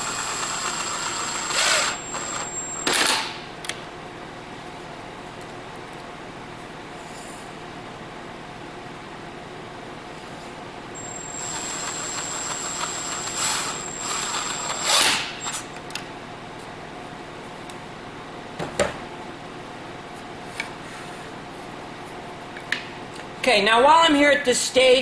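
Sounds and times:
impact driver whining: 0:00.0 - 0:03.4, 0:11.0 - 0:15.7.

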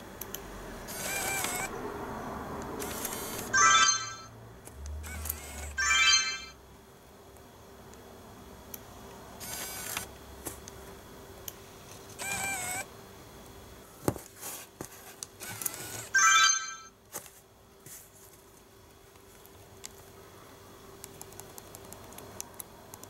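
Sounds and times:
zoom lens motors whirring: 0:00.8 - 0:01.7, 0:02.8 - 0:03.5, 0:05.0 - 0:05.8, 0:09.4 - 0:10.2, 0:12.0 - 0:12.9, 0:15.0 - 0:16.2
camera electronic chime: 0:03.5 - 0:04.3, 0:05.8 - 0:06.6, 0:16.2 - 0:17.0.

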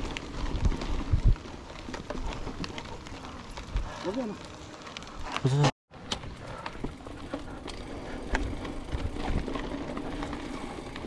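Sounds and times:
bike clicks and rattles: 0:00.0 - 0:11.0
bike tyres on dirt trail: 0:00.0 - 0:11.0.

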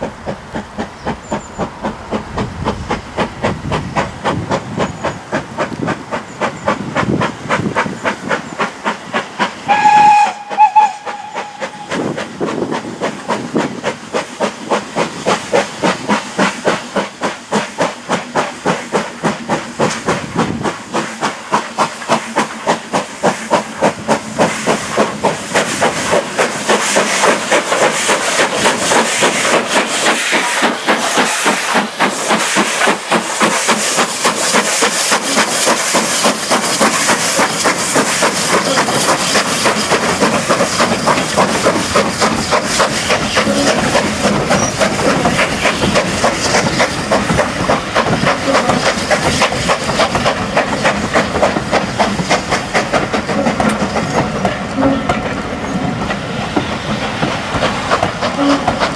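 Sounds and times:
hissing steam: 0:00.0 - 0:58.9
steam locomotive chuffing: 0:00.0 - 0:58.9
steam locomotive whistle blasts: 0:09.6 - 0:12.2, 0:30.3 - 0:31.9, 0:43.4 - 0:43.8, 0:54.7 - 0:55.2, 0:58.3 - 0:58.9.

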